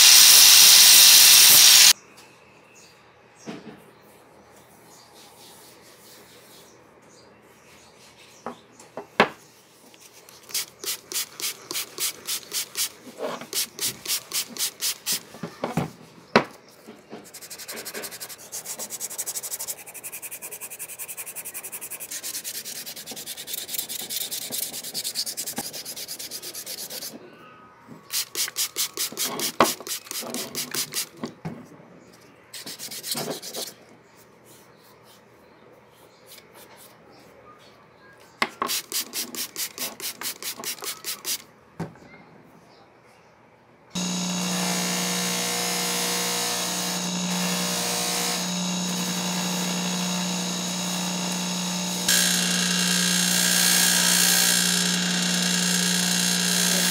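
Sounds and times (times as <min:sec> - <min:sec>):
sandpaper rubbing on wood: 0:00.0 - 0:02.0, 0:10.4 - 0:15.3, 0:17.3 - 0:27.1, 0:28.1 - 0:31.2, 0:32.6 - 0:33.8, 0:38.7 - 0:41.4.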